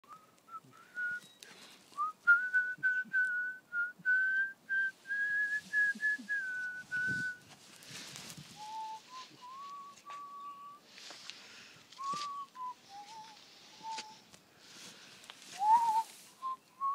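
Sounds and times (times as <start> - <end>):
person whistling: 0.0 - 7.5, 8.6 - 10.8, 12.0 - 14.3, 15.6 - 16.9
rustling: 0.1 - 3.4, 4.3 - 16.9.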